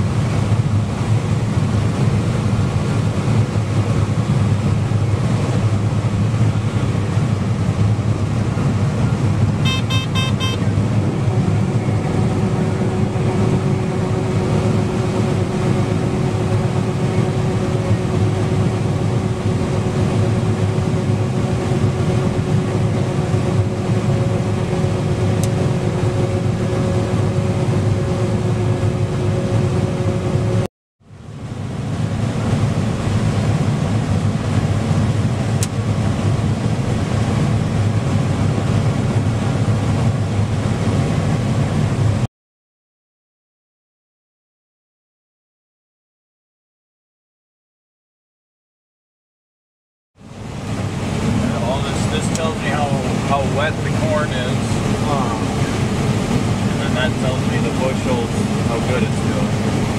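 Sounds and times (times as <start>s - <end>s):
steady whining tone: 0.0s - 30.7s, 50.2s - 59.9s
harvester engine drone: 0.0s - 42.3s, 50.2s - 59.9s.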